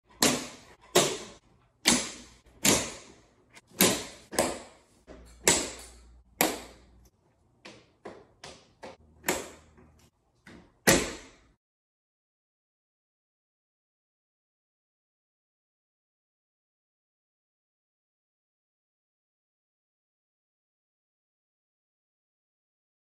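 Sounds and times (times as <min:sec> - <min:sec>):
shade headrails clicking into brackets: 0:00.1 - 0:07.1, 0:08.4 - 0:11.4.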